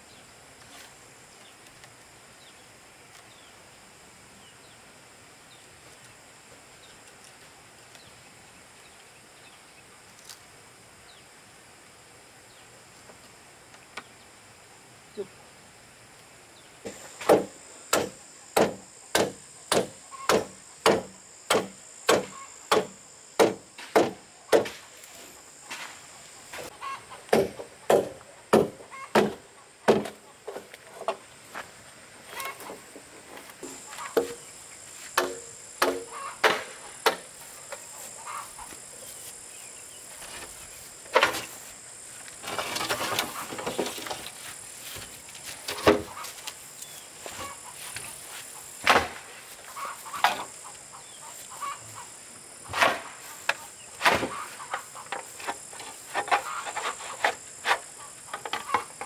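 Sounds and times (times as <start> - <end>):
blade chopping bamboo: 17.2 - 24.8, 35.2 - 37.2.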